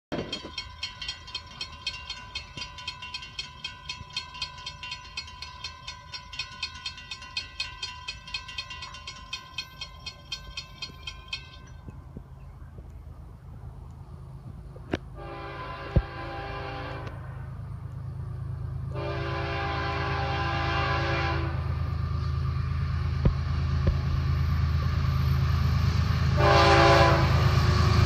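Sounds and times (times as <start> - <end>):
railroad crossing bell ringing: 0.1 - 12.6.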